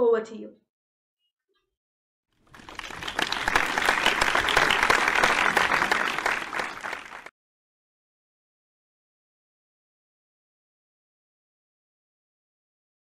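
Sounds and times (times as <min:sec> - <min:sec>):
audience applauding: 0:02.5 - 0:07.3.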